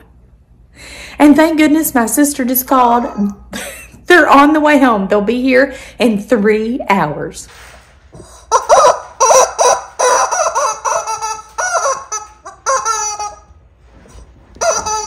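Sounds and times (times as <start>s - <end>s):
toy squeaker squeaking: 8.5s - 13.6s, 14.6s - 15.0s.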